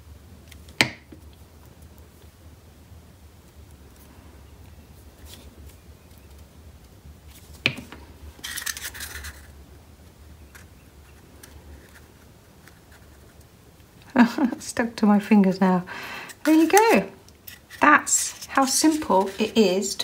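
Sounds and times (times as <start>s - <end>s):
paper rustling: 7.2s - 9.6s, 16.4s - 19.8s.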